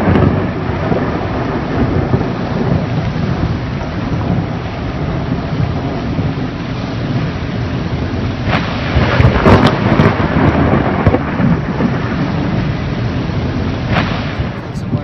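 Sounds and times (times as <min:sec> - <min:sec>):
heavy rain: 0:00.0 - 0:15.0
sharp thunder crackles: 0:00.0 - 0:15.0
thunder rumble: 0:00.0 - 0:15.0.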